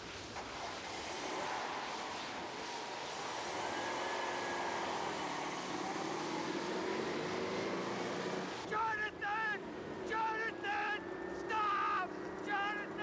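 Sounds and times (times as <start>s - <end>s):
steady rushing noise: 0.0s - 11.0s.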